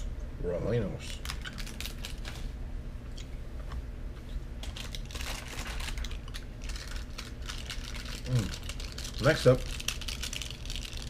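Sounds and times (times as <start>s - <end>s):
plastic wrappers crinkling: 1.0s - 2.5s, 4.6s - 11.0s.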